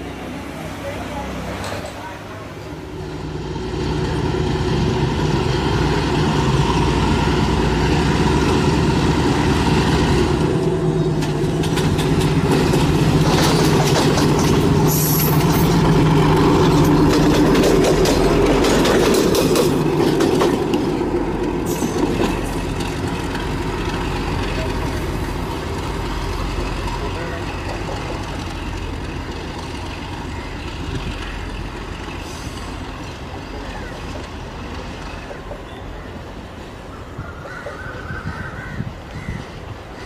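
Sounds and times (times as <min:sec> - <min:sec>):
locomotive engine droning: 0:00.0 - 0:38.1
wheels clicking over rail joints: 0:07.9 - 0:36.8.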